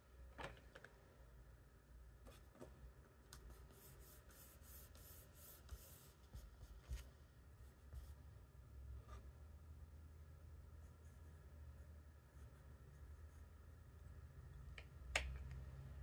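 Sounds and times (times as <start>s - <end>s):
pencil scratching on paper: 3.5s - 8.2s.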